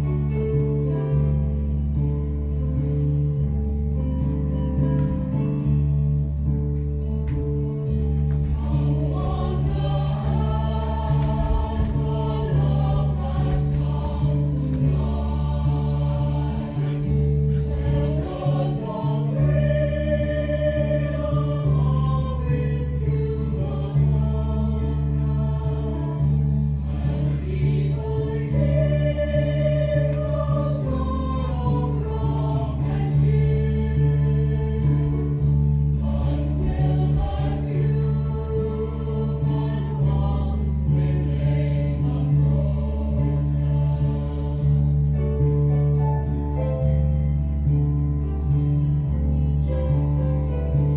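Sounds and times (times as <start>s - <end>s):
choir singing held notes: 8.3s - 45.4s.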